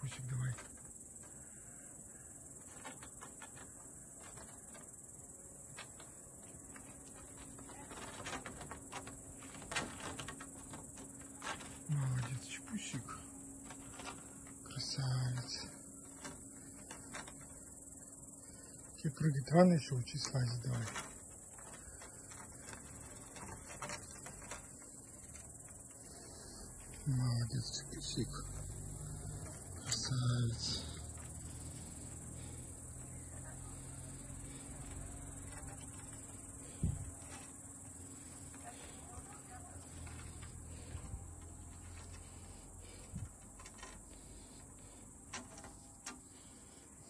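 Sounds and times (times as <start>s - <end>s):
insects chirring: 0.0s - 47.0s
cat claws scratching wood: 20.2s - 27.0s, 33.8s - 46.8s.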